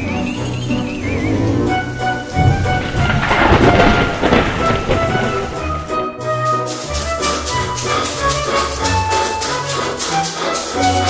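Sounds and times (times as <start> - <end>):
held melody notes: 0.0 - 11.0
quick percussion beat: 6.5 - 11.0.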